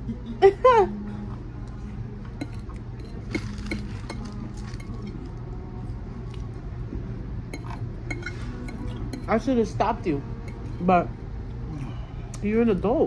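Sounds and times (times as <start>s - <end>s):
low hum: 0.0s - 13.0s
cutlery clinking against a dish: 2.4s - 5.2s, 7.5s - 9.3s.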